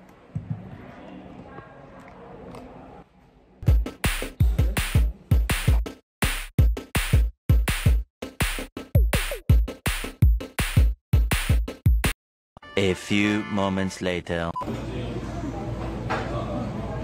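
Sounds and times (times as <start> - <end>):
electronic music with drum-machine beat: 3.6 - 12.2.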